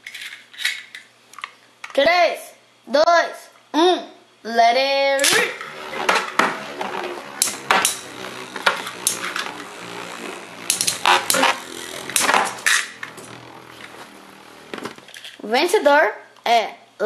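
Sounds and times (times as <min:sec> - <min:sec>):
spinning tops whirring: 0:05.2 - 0:15.4.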